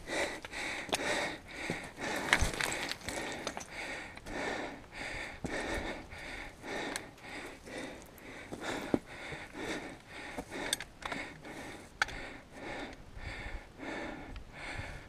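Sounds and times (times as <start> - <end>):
hard rhythmic breathing: 0.0 - 15.0
boots clicking on stone: 0.2 - 4.4, 6.7 - 11.3.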